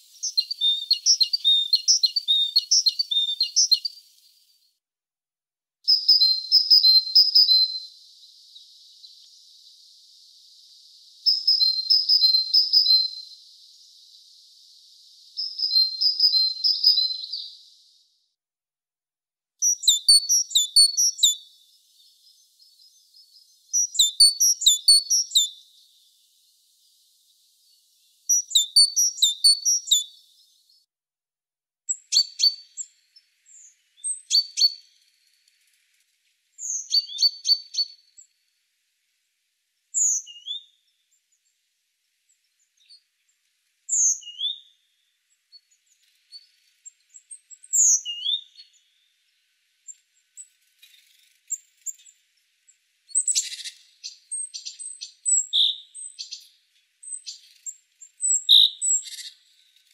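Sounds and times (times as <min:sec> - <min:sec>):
bird clicky calls: 0:00.0 - 0:04.0, 0:53.2 - 0:59.9
bird whistled notes: 0:00.1 - 0:04.0, 0:05.9 - 0:07.9, 0:11.2 - 0:13.3, 0:15.4 - 0:17.5, 0:23.7 - 0:25.6, 0:36.6 - 0:38.0, 0:53.2 - 0:56.4, 0:58.2 - 0:59.3.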